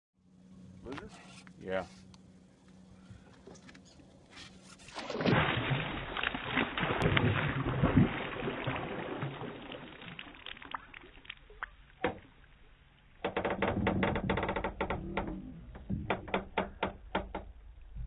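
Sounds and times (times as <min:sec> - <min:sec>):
fish splashing water: 0:04.8 - 0:12.0.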